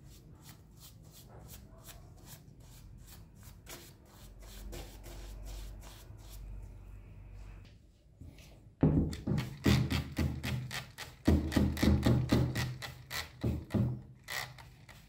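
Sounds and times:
wet brush scrubbing: 0.0s - 6.8s.

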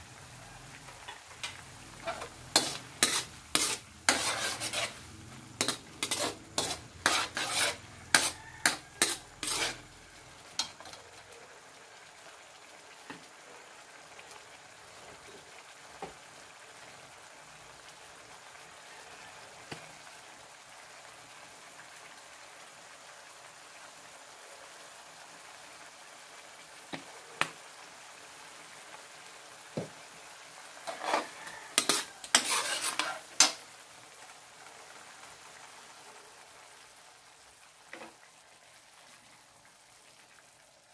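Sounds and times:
soft sizzle of sauce: 0.0s - 40.9s
metal spatula scraping a wok: 1.0s - 11.0s, 30.8s - 33.6s.

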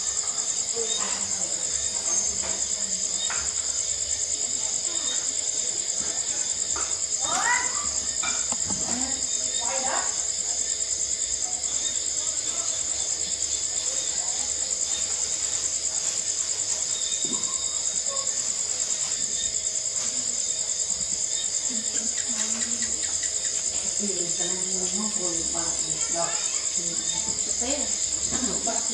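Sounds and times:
crickets chirping: 0.0s - 28.9s.

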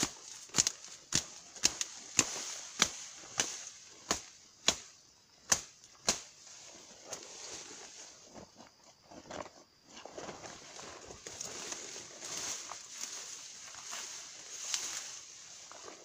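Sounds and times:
dry twigs snapping underfoot: 0.0s - 4.8s.

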